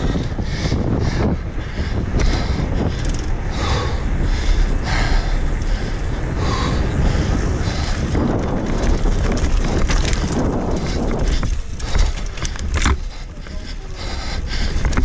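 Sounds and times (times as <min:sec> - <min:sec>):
mountain bike rumbling and rattling: 0:00.0 - 0:15.0
wind buffeting microphone: 0:00.0 - 0:15.0.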